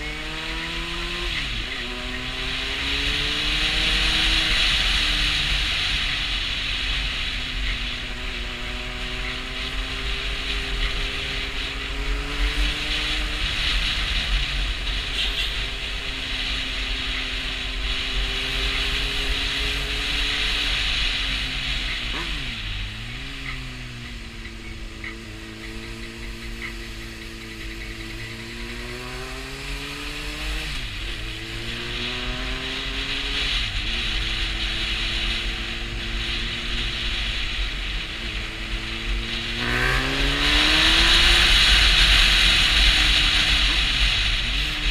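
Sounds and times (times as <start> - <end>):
motorcycle engine running: 0.0 - 44.9
wind hiss over microphone: 24.9 - 44.9.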